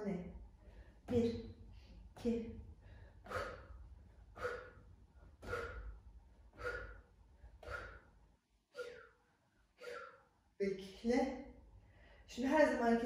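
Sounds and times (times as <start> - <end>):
woman forceful exhalations: 2.7 - 8.1.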